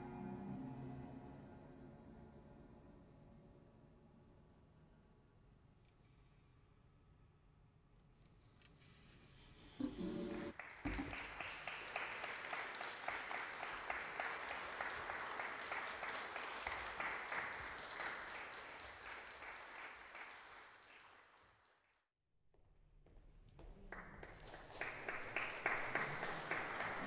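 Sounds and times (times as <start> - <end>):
audience applauding: 10.5 - 22.0, 23.8 - 27.0.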